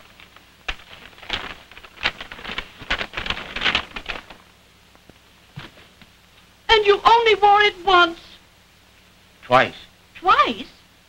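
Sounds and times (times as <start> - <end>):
stiff paper rustling and crackling: 0.0 - 4.5.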